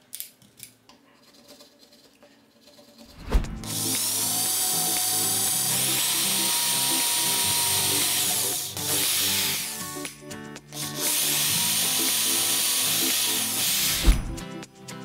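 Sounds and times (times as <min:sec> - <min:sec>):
short thump: 0:03.2 - 0:03.6, 0:14.0 - 0:14.4
cordless drill boring into wood: 0:03.6 - 0:09.8, 0:10.8 - 0:14.0.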